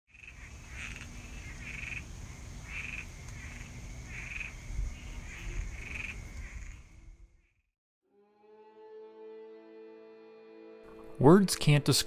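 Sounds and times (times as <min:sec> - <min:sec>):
frogs croaking: 0:00.1 - 0:07.7.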